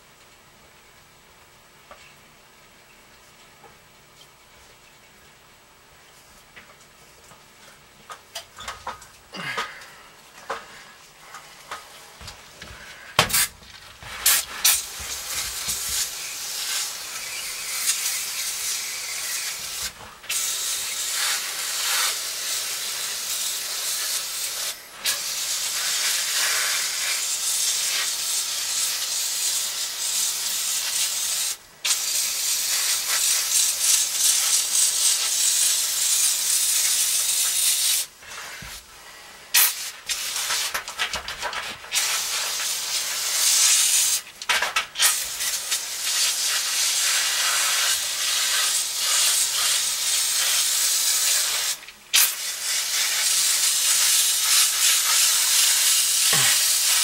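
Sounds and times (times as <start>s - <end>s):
aerosol can spraying: 12.6s - 38.9s, 39.5s - 57.0s.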